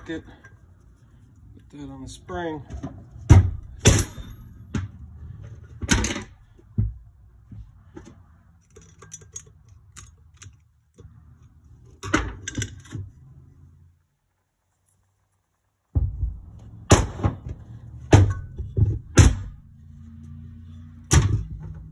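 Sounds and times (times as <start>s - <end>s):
small metal clicks: 8.5s - 13.0s.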